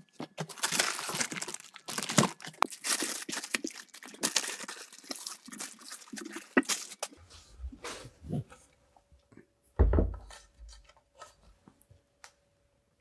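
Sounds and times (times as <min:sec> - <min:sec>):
foam packaging rustling and crinkling: 0:00.0 - 0:07.2.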